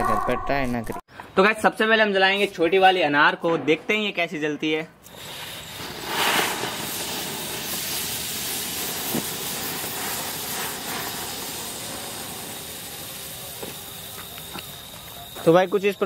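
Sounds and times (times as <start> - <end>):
firework fountain hissing: 5.0 - 16.0.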